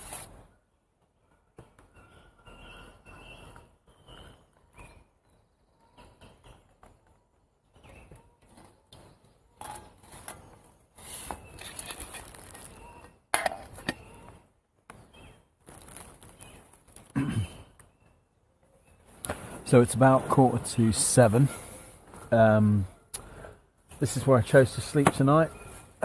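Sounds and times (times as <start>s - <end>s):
crinkly bag rustling: 11.3s - 12.9s, 15.6s - 17.2s.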